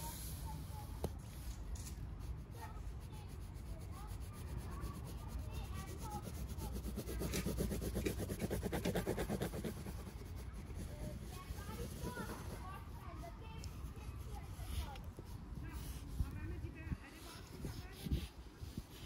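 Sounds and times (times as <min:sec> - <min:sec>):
pencil scratching on paper: 0:02.2 - 0:16.4
pencil hatching strokes: 0:02.3 - 0:16.3.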